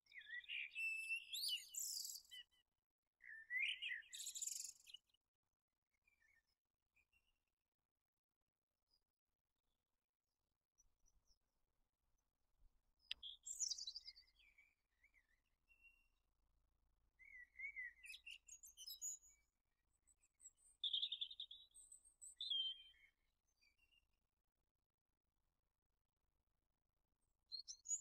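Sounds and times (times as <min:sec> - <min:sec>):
songbirds chirping and warbling: 0:00.1 - 0:05.2, 0:06.0 - 0:07.3, 0:13.0 - 0:16.2, 0:17.1 - 0:24.0.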